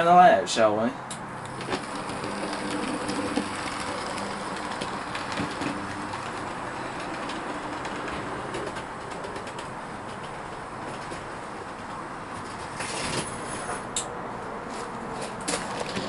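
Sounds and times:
model train motor hum: 1.4s - 10.0s
wheel clicks over rail joints: 1.4s - 14.1s, 15.2s - 16.0s.

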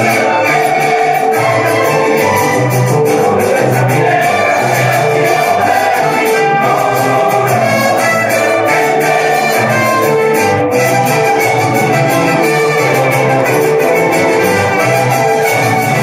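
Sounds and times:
folk music with trumpets and violins: 0.0s - 16.0s.

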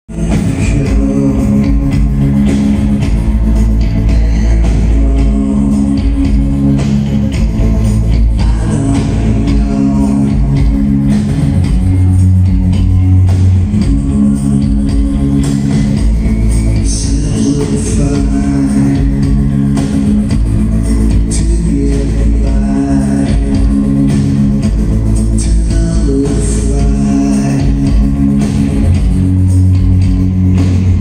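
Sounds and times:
man singing: 0.1s - 2.4s, 4.0s - 6.8s, 8.3s - 11.1s, 13.7s - 15.3s, 16.8s - 19.6s, 21.1s - 24.5s, 25.2s - 28.3s
live rock band playing: 0.1s - 31.0s.

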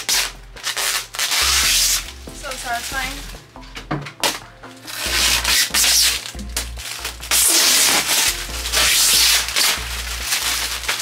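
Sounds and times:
background music: 0.0s - 11.0s
plastic film crinkling and rustling: 0.0s - 11.0s.

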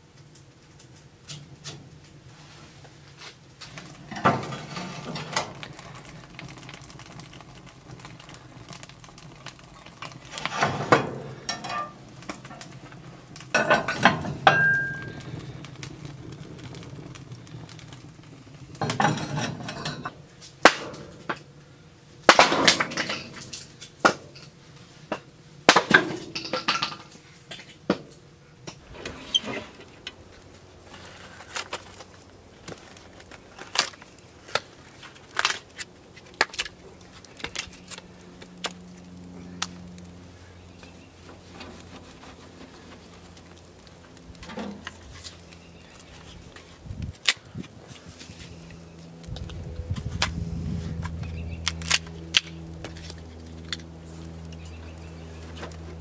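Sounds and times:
firewood knocking into metal firebox: 4.0s - 17.9s, 18.7s - 21.4s, 22.3s - 24.4s
stove lid clinking and scraping: 10.4s - 12.4s.

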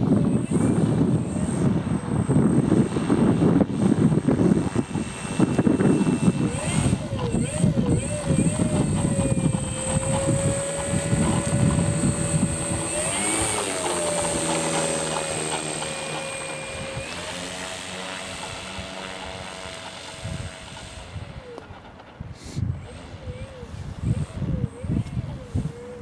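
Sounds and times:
model plane motor and propeller: 0.0s - 26.0s.

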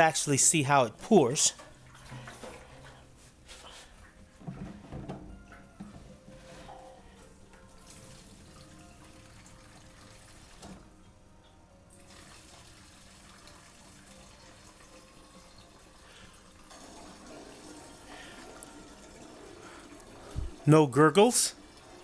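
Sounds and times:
fuel pouring into can: 11.9s - 20.7s.

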